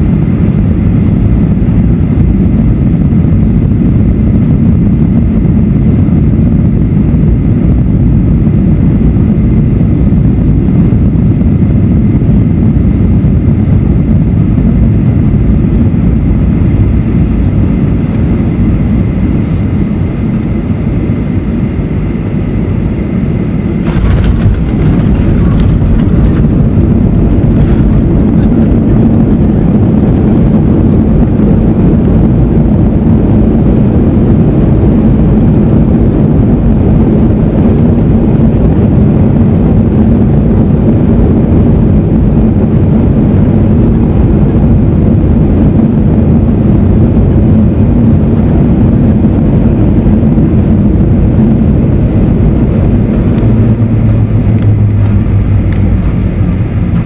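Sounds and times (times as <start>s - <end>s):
jet engine cabin rumble: 0.0s - 57.0s
landing gear knocks and rattles: 23.8s - 26.6s.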